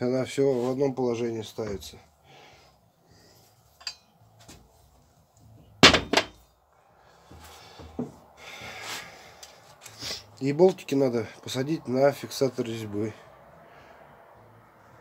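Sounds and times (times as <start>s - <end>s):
metal engine parts handled: 3.8s - 4.1s, 5.8s - 6.4s.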